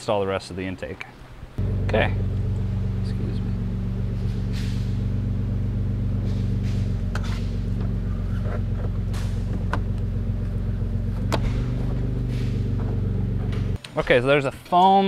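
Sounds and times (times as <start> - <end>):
motor humming: 1.6 - 13.8
sharp clicks and knocks: 6.7 - 10.1.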